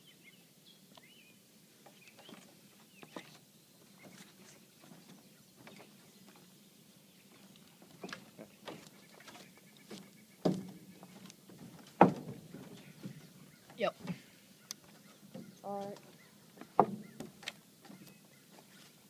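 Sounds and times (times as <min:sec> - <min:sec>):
heavy thumps on wooden dock: 0:10.4 - 0:13.4, 0:15.2 - 0:18.1.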